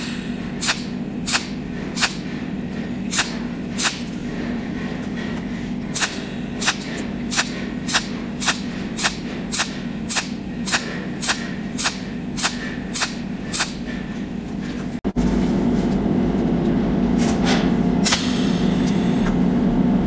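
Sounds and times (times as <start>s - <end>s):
steady low hum: 0.0s - 20.0s
welding torch snapping: 0.6s - 2.2s, 3.1s - 4.1s, 6.0s - 13.8s.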